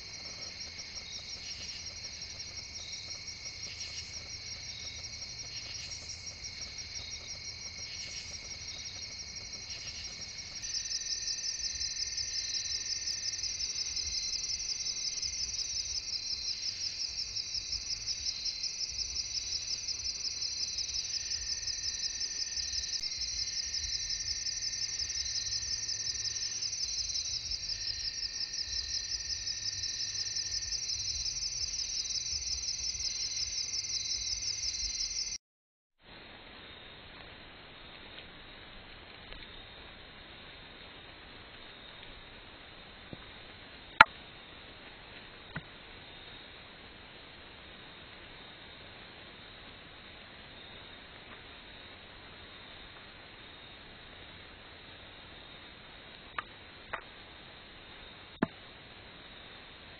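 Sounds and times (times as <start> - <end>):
high pulsing insect trill: 0.0 - 35.4
low insect chirring: 0.0 - 35.4.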